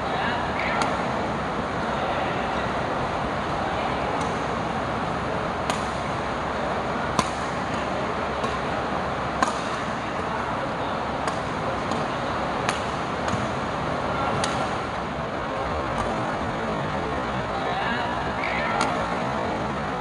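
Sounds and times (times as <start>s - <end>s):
rackets striking shuttlecock: 0.6s - 1.3s, 4.1s - 4.6s, 5.5s - 6.3s, 7.1s - 10.3s, 11.2s - 15.0s, 15.9s - 16.2s, 18.3s - 19.3s.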